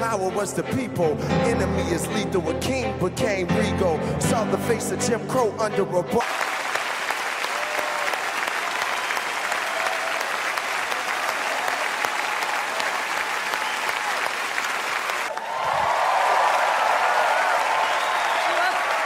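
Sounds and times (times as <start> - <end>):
audience applause: 6.2 - 19.0.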